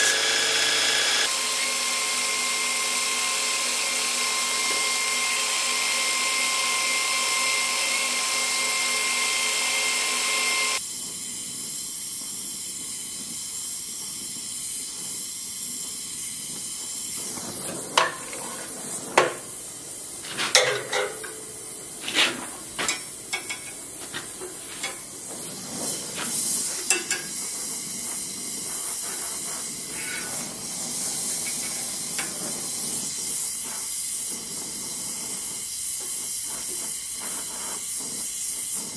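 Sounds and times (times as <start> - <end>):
belt grinder whining: 0.0 - 10.8
torch flame hissing: 1.0 - 38.9
metal clinks and knocks: 20.5 - 21.6.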